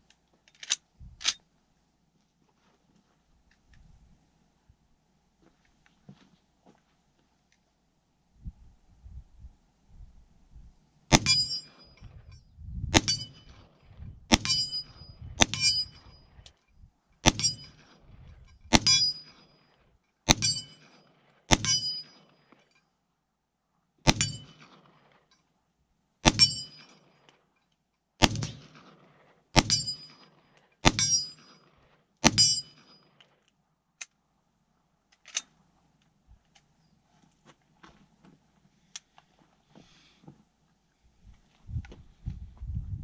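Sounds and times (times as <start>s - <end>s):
rifle shots with echo: 11.1s - 11.6s, 12.9s - 13.7s, 14.3s - 15.8s, 17.2s - 17.8s, 18.7s - 19.5s, 20.3s - 20.9s, 21.5s - 22.3s, 24.0s - 25.1s, 26.2s - 26.9s, 28.2s - 31.6s, 32.2s - 32.8s.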